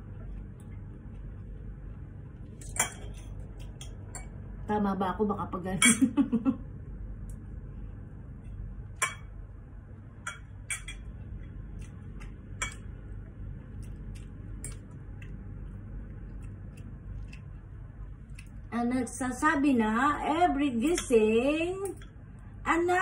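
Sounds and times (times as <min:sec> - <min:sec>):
low hum: 0:00.0 - 0:23.0
cutlery clinking on a plate: 0:10.3 - 0:11.1.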